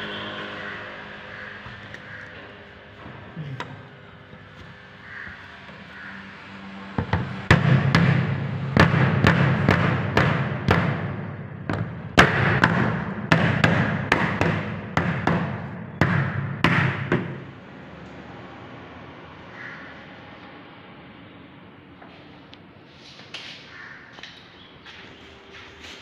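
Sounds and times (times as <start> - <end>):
rubber mallet knocking on plastic: 8.8 - 17.4.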